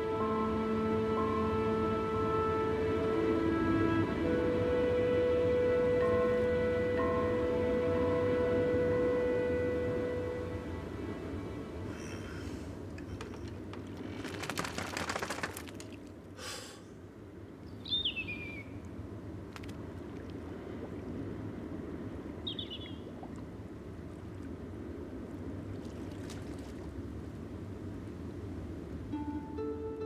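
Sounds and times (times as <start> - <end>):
sea waves: 0.0 - 17.6, 18.8 - 30.0
wind: 0.0 - 30.0
bird cries: 11.9 - 13.6, 17.7 - 18.8, 22.4 - 23.1.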